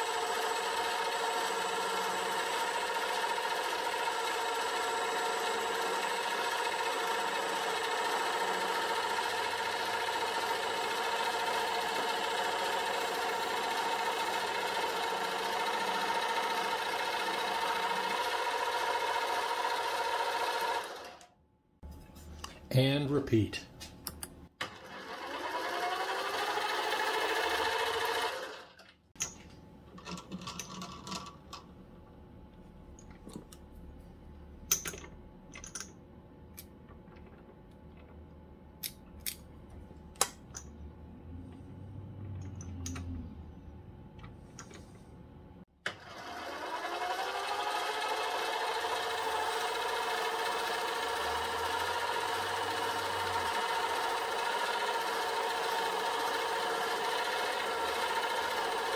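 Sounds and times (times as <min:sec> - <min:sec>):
lathe motor whining: 0:00.0 - 0:21.2, 0:24.6 - 0:28.8, 0:45.9 - 0:58.9.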